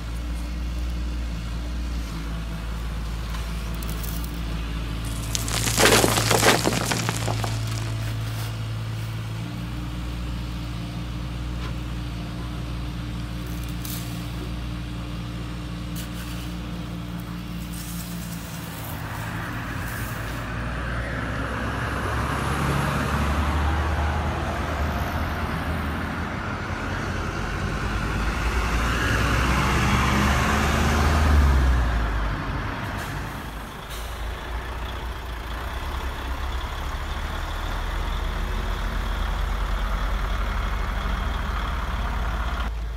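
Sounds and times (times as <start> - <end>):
model truck diesel engine sound: 31.8 - 42.9.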